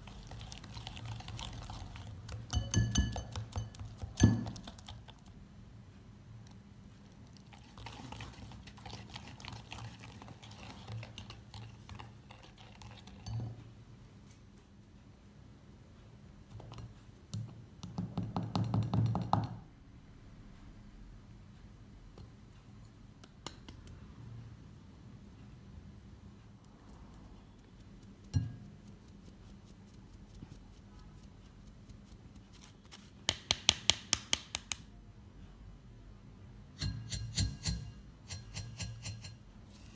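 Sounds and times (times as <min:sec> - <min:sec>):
whisk clicking against glass bowl: 0:02.3 - 0:05.0
sieve tapping glass bowl: 0:02.5 - 0:04.8, 0:28.3 - 0:28.7, 0:36.8 - 0:39.4.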